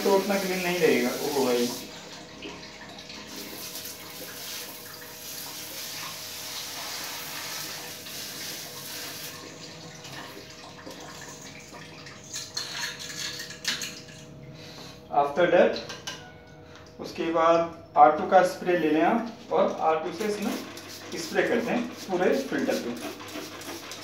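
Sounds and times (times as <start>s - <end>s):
water spraying and splashing: 0.0s - 1.9s, 3.2s - 9.6s, 20.1s - 24.0s.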